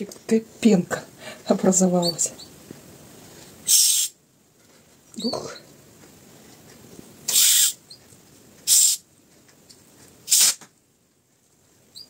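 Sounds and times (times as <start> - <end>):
gas hissing from bottle: 3.7 - 4.1, 7.3 - 7.8, 8.7 - 9.0, 10.3 - 10.6.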